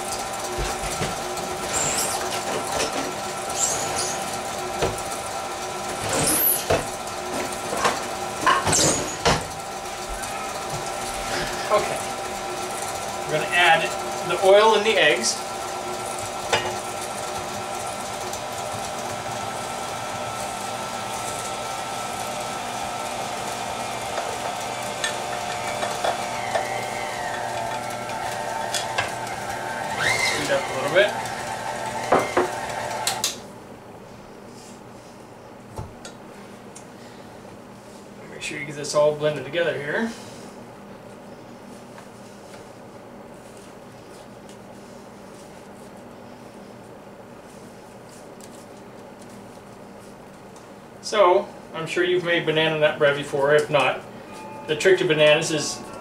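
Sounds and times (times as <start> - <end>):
stand mixer motor whine: 0.0 - 33.4
high squeaks: 1.7 - 2.3, 3.5 - 4.2, 29.9 - 30.6.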